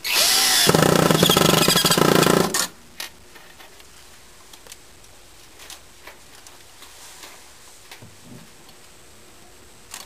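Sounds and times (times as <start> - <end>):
cordless drill driving a screw: 0.0 - 2.7.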